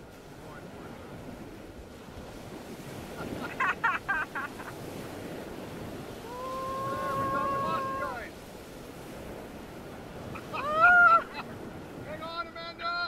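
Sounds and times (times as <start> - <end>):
river rapids rushing: 6.2 - 8.4.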